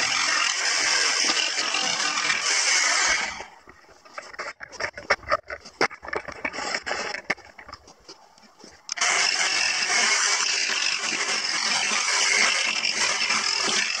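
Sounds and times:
electric jigsaw cutting plywood: 0:00.0 - 0:03.5, 0:08.9 - 0:14.0.

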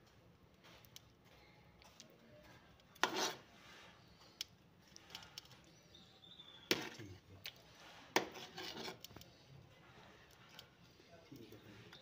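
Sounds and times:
metal ladle scraping cooking pot: 0:03.0 - 0:04.1, 0:07.7 - 0:09.2.

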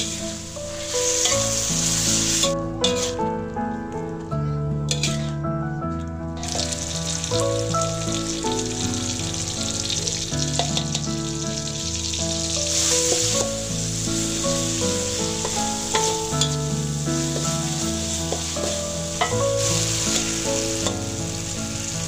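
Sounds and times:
metal spatula scraping wok: 0:00.0 - 0:03.3, 0:04.9 - 0:05.4, 0:06.4 - 0:07.4, 0:10.5 - 0:11.1, 0:11.8 - 0:21.4
spice paste sizzling in hot oil: 0:00.0 - 0:03.4, 0:04.9 - 0:05.3, 0:06.4 - 0:22.0
instrumental music: 0:00.0 - 0:22.0.

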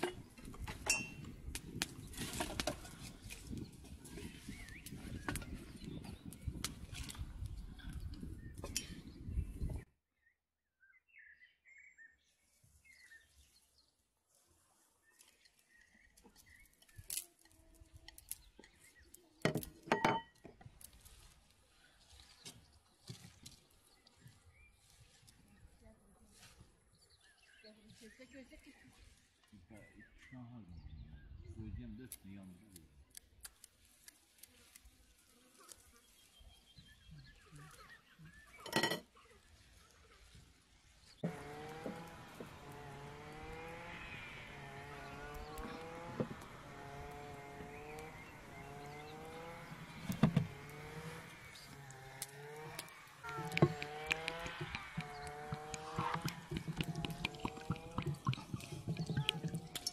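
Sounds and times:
small birds chirping: 0:00.0 - 0:59.9
knife clinking on metal bowl: 0:00.8 - 0:01.2.

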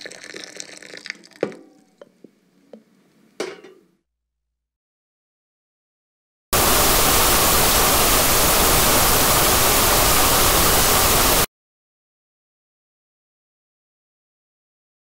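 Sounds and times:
television static hiss: 0:06.6 - 0:11.5.

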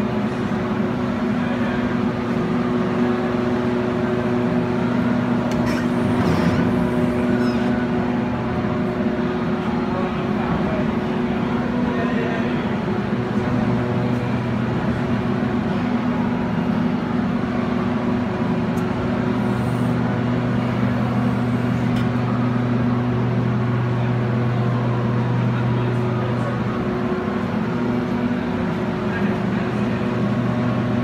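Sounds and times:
wire drawing machine drone: 0:00.0 - 0:10.6, 0:12.7 - 0:31.0
low hum of motor drives: 0:00.0 - 0:31.0.

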